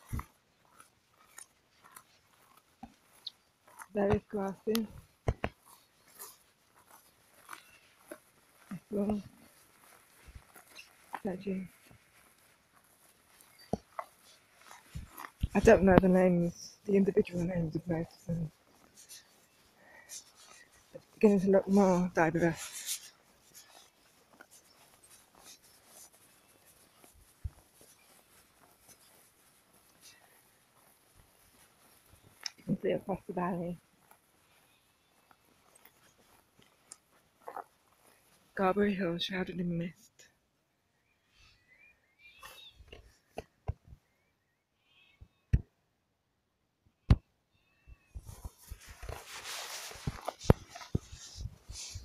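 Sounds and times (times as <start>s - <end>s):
jacket hood rubbing on microphone: 0.0s - 38.6s, 48.0s - 52.0s
faint high bird calls: 40.9s - 43.3s, 47.5s - 48.2s.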